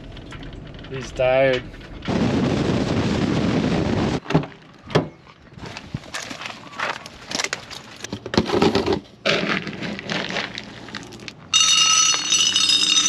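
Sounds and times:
plastic scoop digging in dry kibble: 9.3s - 11.3s
loud high ringing: 11.5s - 13.0s.

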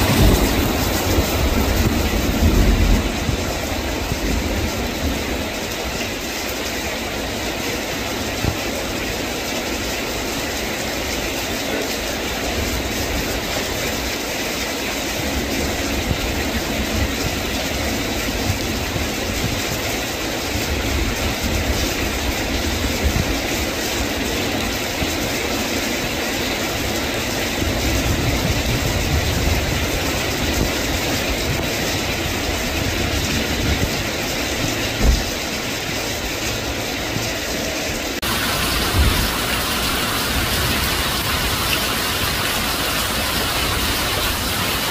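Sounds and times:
low rumble: 0.0s - 5.5s
heavy rain on puddles and gravel: 0.0s - 44.9s.

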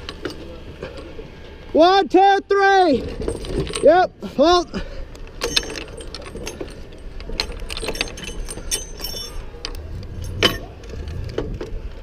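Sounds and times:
metal hardware clinking and jingling: 3.0s - 4.0s, 5.4s - 10.8s
low rumble: 8.2s - 12.0s
sharp metal clank: 10.2s - 10.7s.

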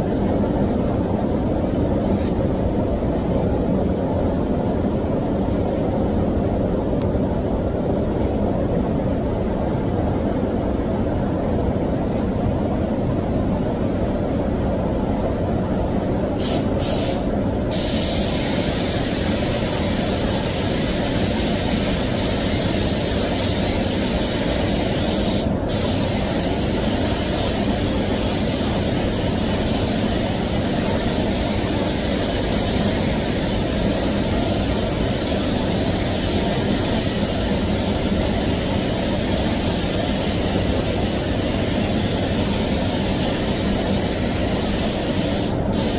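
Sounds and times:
extraction fan rumble: 0.0s - 45.9s
paint spray gun hissing: 16.4s - 45.9s.

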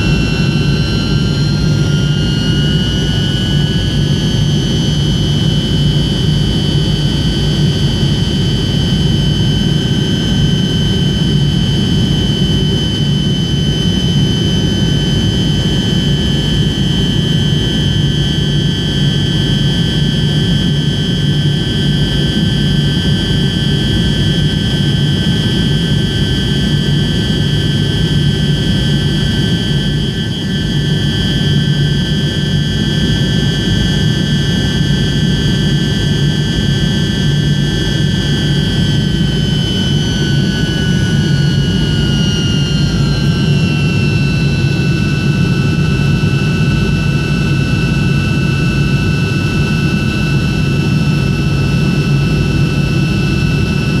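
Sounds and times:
high whining engine tones: 0.0s - 6.7s.

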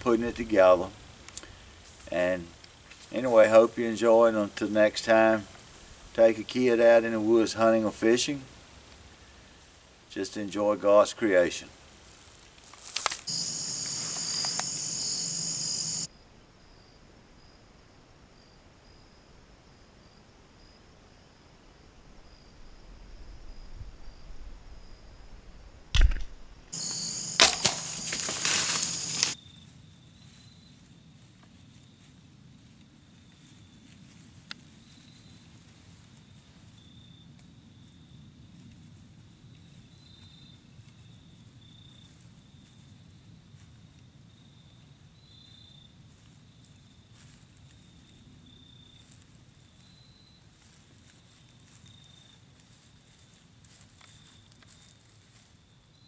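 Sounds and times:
faint high insect trill: 0.0s - 56.0s
loud rustling and crackling: 26.8s - 29.4s
rubber bands snapping: 27.4s - 29.4s.

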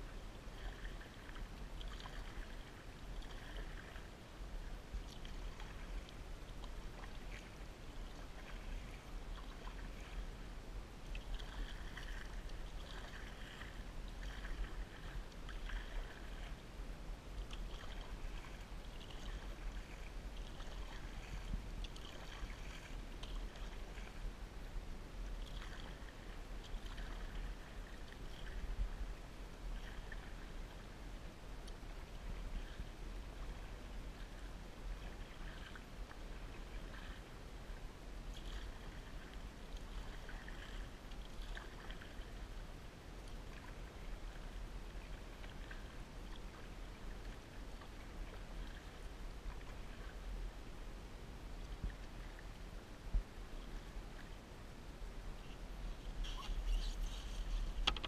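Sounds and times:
water lapping along hull: 0.0s - 58.0s
paddle strokes splashing: 0.2s - 24.4s, 25.3s - 50.8s, 55.3s - 58.0s.

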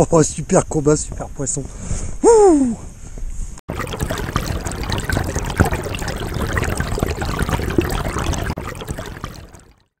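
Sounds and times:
river water trickling and lapping: 3.7s - 10.0s
small water splashes: 3.7s - 10.0s.

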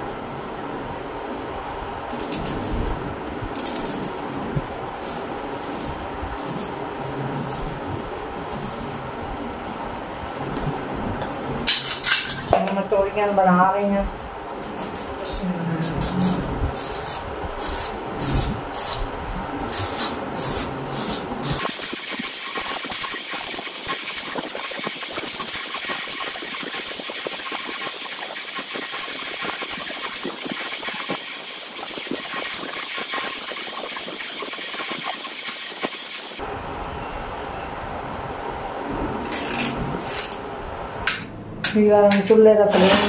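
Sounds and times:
blade scraping gourd skin: 16.0s - 21.2s
steady hiss: 21.5s - 36.4s.

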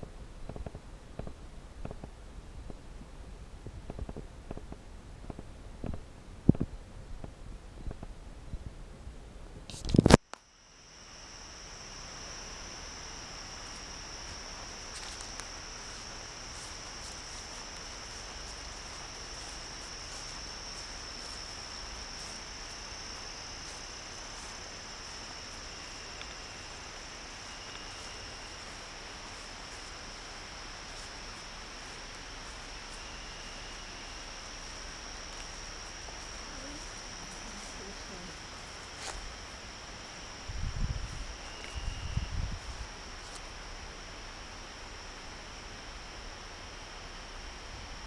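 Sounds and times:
insects trilling: 9.9s - 48.0s.

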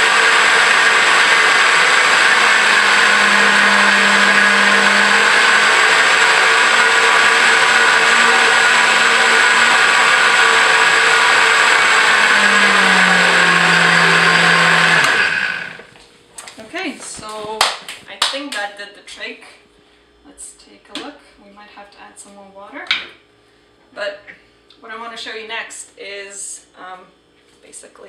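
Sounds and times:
blender running: 0.0s - 15.9s.

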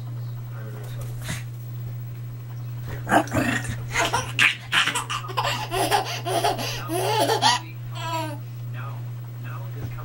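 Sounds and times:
baby laughing and squealing: 4.0s - 8.4s.

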